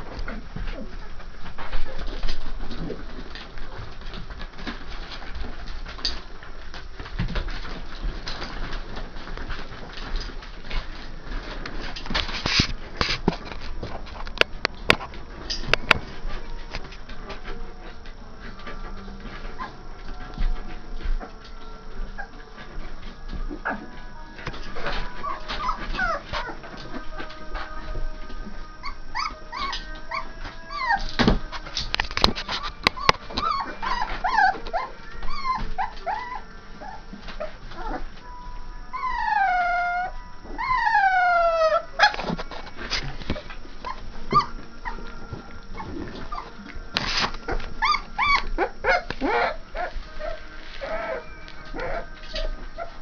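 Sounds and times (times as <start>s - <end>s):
puppies whining and yelping: 15.1s - 53.0s
puppy howls: 23.5s - 31.7s, 32.6s - 38.2s, 38.8s - 46.7s, 47.5s - 53.0s.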